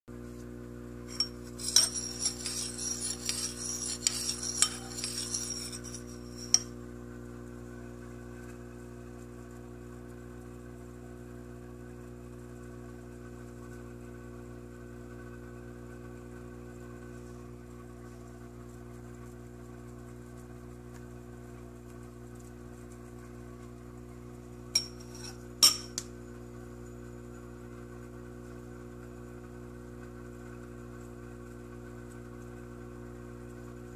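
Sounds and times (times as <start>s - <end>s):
spoon clinking in ceramic bowl: 1.1s - 6.7s, 24.8s - 26.1s.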